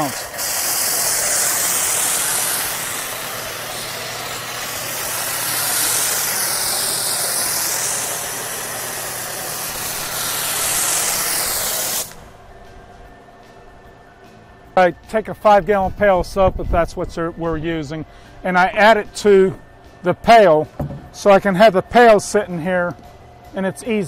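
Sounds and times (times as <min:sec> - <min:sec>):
pressure washer spray hiss: 0:00.0 - 0:12.3
motor humming: 0:00.0 - 0:14.2.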